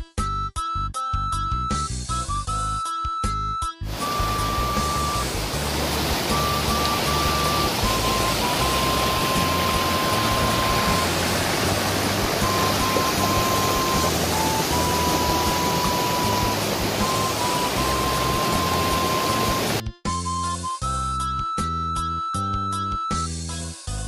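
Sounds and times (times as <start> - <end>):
soft background music: 0.2 - 24.0
stream rushing over boulders: 3.9 - 19.8.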